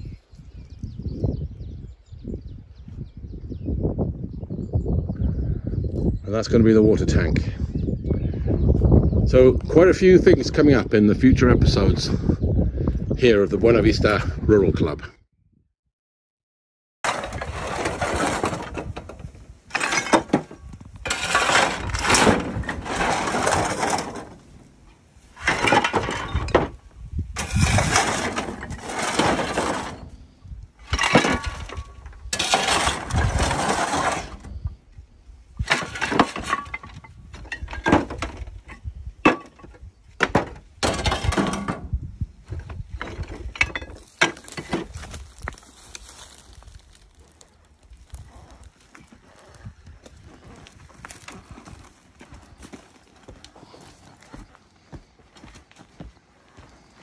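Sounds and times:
shovel scraping: 0:17.0 - 0:24.7, 0:25.3 - 0:26.6, 0:27.3 - 0:30.2, 0:30.8 - 0:34.6, 0:35.6 - 0:36.9
roof tiles clattering: 0:17.0 - 0:26.8, 0:27.4 - 0:30.2, 0:30.8 - 0:34.6, 0:35.6 - 0:41.9, 0:42.5 - 0:47.1.

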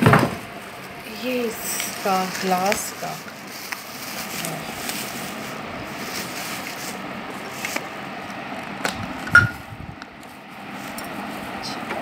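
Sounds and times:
bubble wrap rustling and crinkling: 0:00.4 - 0:09.2.

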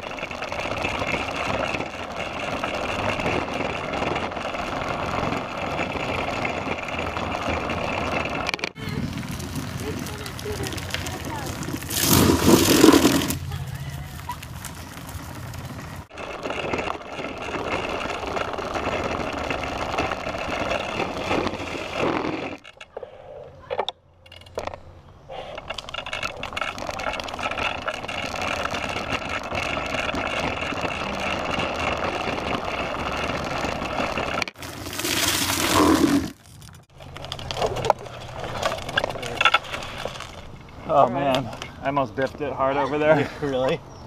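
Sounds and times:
trike rolling over brick pavers: 0:00.0 - 0:44.0
loud scrape: 0:11.0 - 0:13.7, 0:15.7 - 0:22.7, 0:27.0 - 0:36.7.

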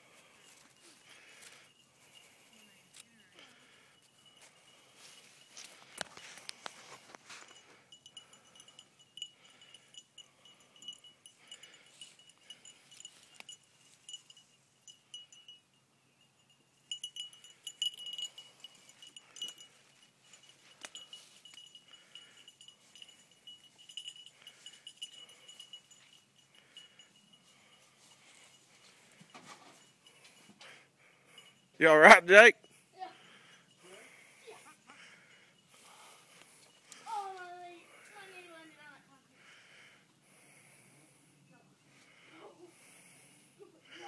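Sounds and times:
bell-like tinkling: 0:00.0 - 0:39.0, 0:42.7 - 0:44.0.

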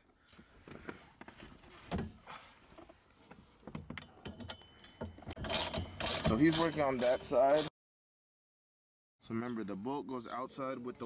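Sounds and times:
metal hardware clicking and knocking: 0:03.7 - 0:07.7.

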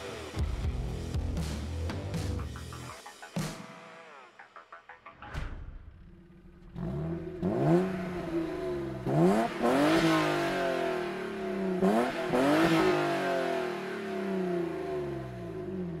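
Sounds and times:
car engine revving: 0:05.9 - 0:16.0.

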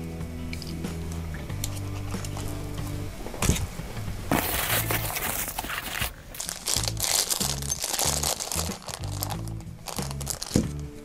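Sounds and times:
background music with bass line: 0:00.0 - 0:11.0
plastic bags crinkling: 0:04.3 - 0:10.8.

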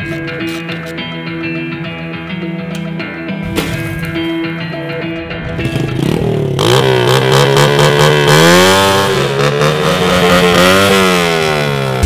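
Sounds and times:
motorbike engine revving: 0:05.4 - 0:12.0.

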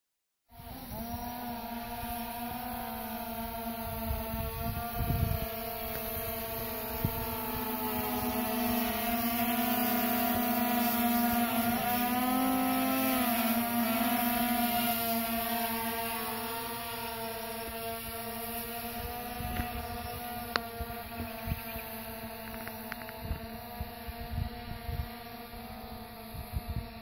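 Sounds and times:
quadcopter propellers humming: 0:00.5 - 0:27.0.

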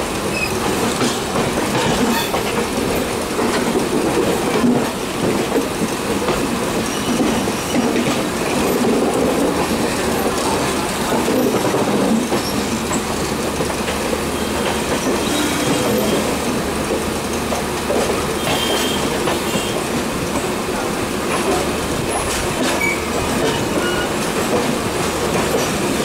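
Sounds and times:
train wheels rumbling on track: 0:00.0 - 0:26.0
high wheel squeal: 0:00.3 - 0:00.6, 0:22.8 - 0:24.2.

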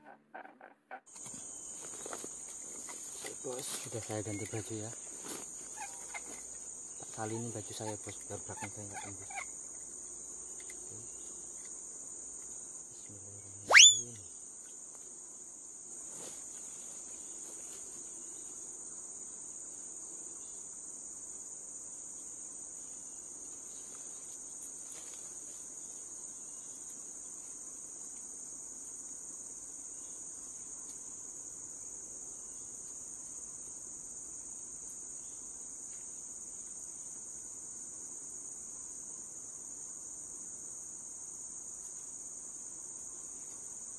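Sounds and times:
insects droning: 0:00.0 - 0:43.9
upward sweeping whistle: 0:13.7 - 0:14.2.

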